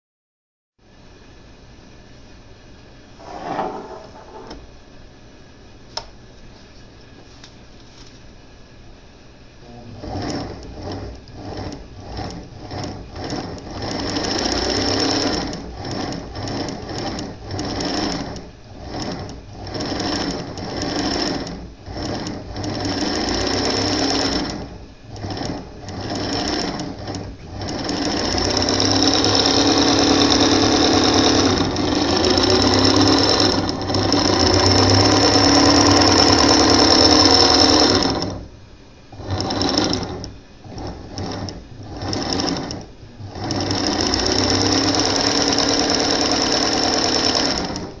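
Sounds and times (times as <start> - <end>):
sewing machine motor whining: 9.9 - 38.5, 39.1 - 48.0.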